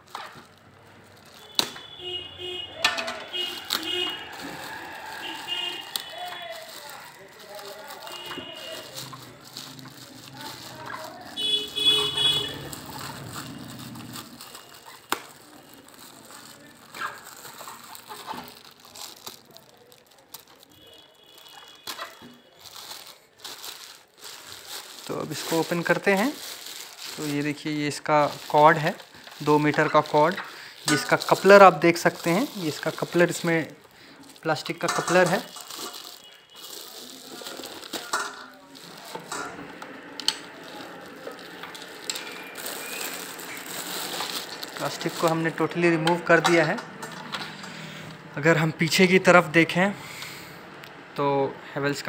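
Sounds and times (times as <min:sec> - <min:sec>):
plastic bags rustling: 0:00.0 - 0:49.9.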